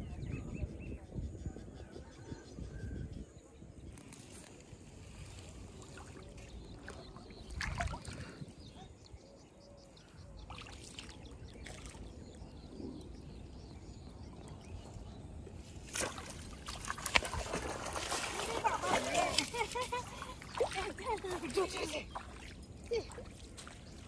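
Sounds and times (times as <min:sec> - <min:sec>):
small water noises: 0:03.7 - 0:24.0
sharp water splash: 0:15.8 - 0:23.7.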